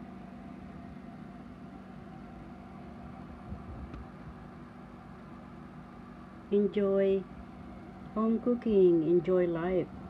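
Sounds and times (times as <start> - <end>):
low machine hum: 0.0 - 10.0.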